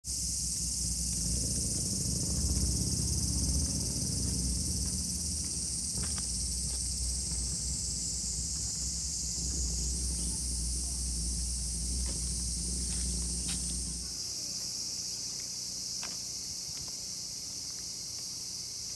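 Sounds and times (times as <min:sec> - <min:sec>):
high-pitched insect chorus: 0:00.0 - 0:18.9
low rumble: 0:00.1 - 0:14.2.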